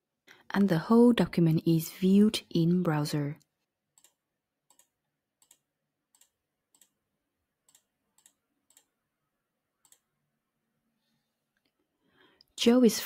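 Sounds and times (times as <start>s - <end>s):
computer mouse clicks: 4.0s - 7.0s, 7.6s - 8.9s, 9.8s - 10.1s.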